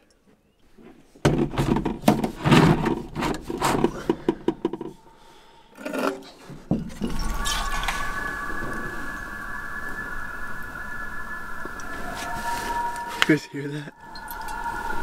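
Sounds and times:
gear rubbing and scraping: 0:01.5 - 0:05.0
loon wailing call: 0:07.2 - 0:15.0.

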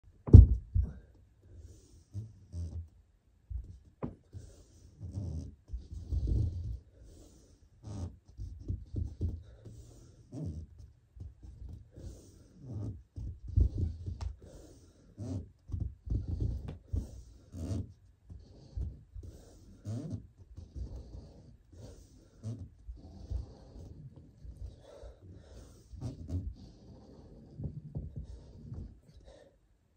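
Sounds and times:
person breathing hard: 0:13.9 - 0:15.2, 0:20.8 - 0:29.7.

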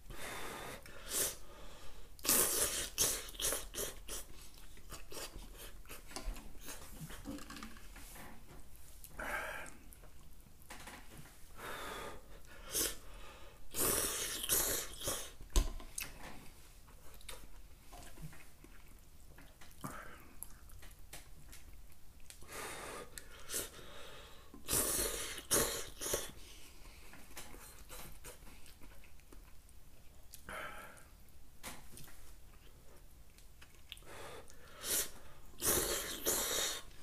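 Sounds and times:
person slurping noodles: 0:02.2 - 0:04.3, 0:13.7 - 0:15.4, 0:24.6 - 0:26.3, 0:34.8 - 0:36.9
chewing: 0:17.1 - 0:22.4, 0:27.5 - 0:30.5, 0:32.0 - 0:34.6.

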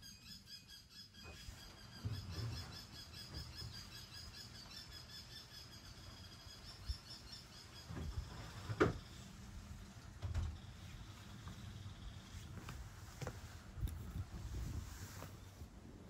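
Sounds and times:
high bird chirps: 0:00.0 - 0:09.2
dull low thumps and rustles: 0:07.9 - 0:15.9.

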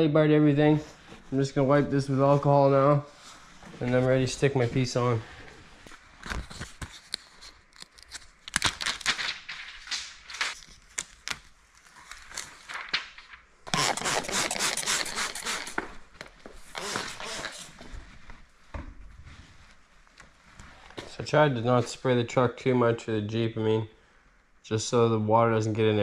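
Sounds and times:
plastic film crackling: 0:06.7 - 0:15.8
spray bottle squirting: 0:13.7 - 0:15.8.

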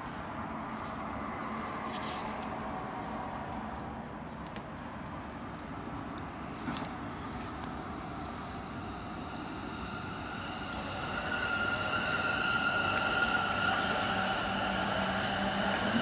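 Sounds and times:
city traffic: 0:00.0 - 0:16.0
train high whine: 0:05.2 - 0:16.0.

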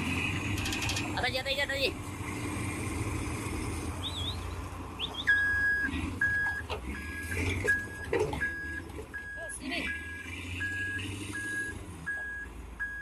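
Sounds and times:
heavy diesel machinery humming: 0:00.0 - 0:13.0
reversing alarm beeps: 0:05.1 - 0:13.0.

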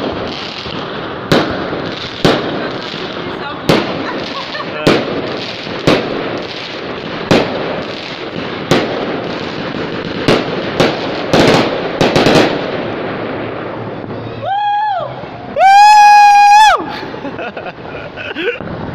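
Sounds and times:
fireworks bangs and crackle: 0:00.0 - 0:18.9.

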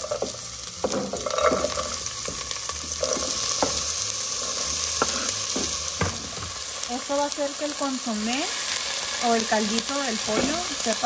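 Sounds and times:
vegetables sizzling in hot oil: 0:00.0 - 0:11.0
knife scraping cutting board: 0:03.0 - 0:03.8, 0:04.4 - 0:05.4.

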